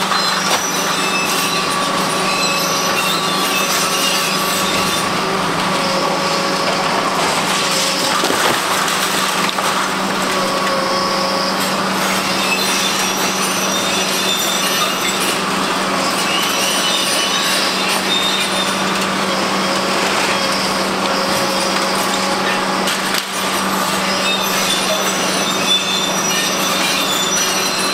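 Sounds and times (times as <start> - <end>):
diesel engine hum: 0.0 - 14.4
high-pitched metal squeals: 0.0 - 27.9
concrete crunching and cracking: 6.8 - 10.5.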